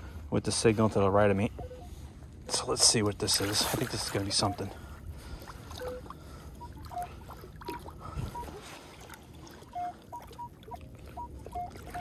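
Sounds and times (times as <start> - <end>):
metal detector beeps: 1.5 - 2.0, 4.3 - 4.7, 5.8 - 7.2, 8.3 - 8.6, 9.6 - 12.0.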